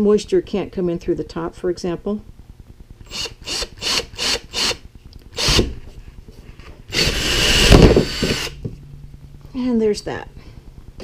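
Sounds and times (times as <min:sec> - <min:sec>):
drill boring into plastic: 0:03.1 - 0:04.8, 0:05.4 - 0:05.7, 0:06.9 - 0:08.6
drill chuck rasping: 0:03.1 - 0:04.8, 0:06.9 - 0:08.6.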